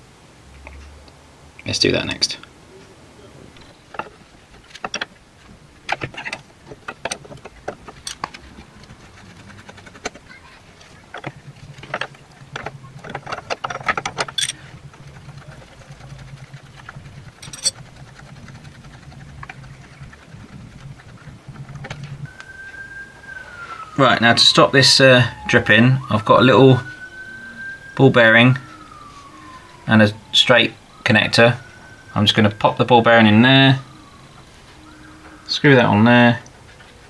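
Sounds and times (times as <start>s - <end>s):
low steady hum: 0.0s - 37.0s
spanner clicking on metal: 13.0s - 14.6s, 17.4s - 17.8s.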